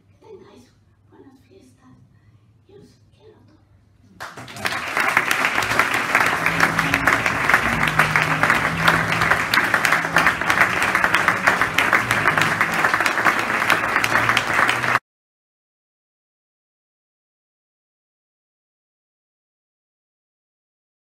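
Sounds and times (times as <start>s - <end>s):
audience applauding: 4.2s - 15.0s.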